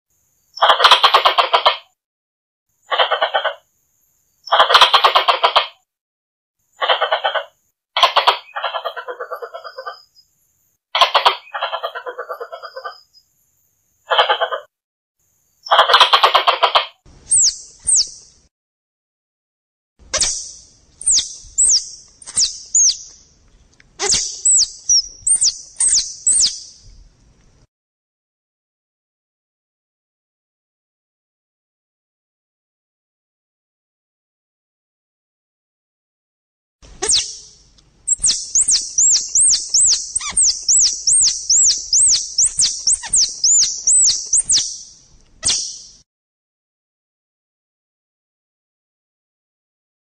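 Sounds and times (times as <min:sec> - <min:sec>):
high squirrel call chirps: 0:00.5 - 0:01.8, 0:02.9 - 0:03.6, 0:04.4 - 0:05.8, 0:06.7 - 0:10.3, 0:11.0 - 0:13.3, 0:14.0 - 0:14.7, 0:15.6 - 0:18.4, 0:20.0 - 0:23.4, 0:24.0 - 0:27.0, 0:37.0 - 0:46.0.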